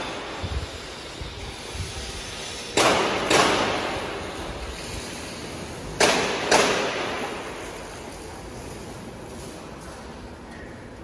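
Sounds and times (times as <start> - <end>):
sharp bangs echoing in a hall: 2.5 - 8.4.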